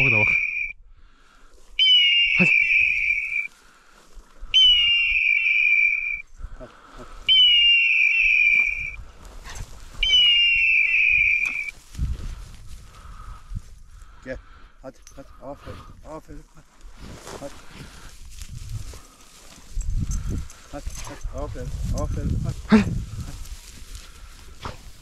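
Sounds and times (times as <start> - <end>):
electronic collar beeps: 0.0 - 0.7, 1.8 - 3.5, 10.0 - 11.7
dry grass rustling: 0.0 - 14.6, 15.2 - 25.0.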